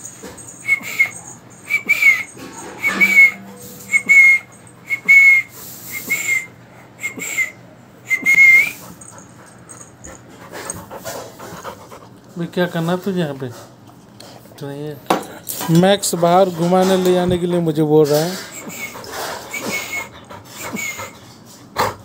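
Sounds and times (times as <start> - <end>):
dog whining: 0.4 - 10.8, 18.4 - 21.2.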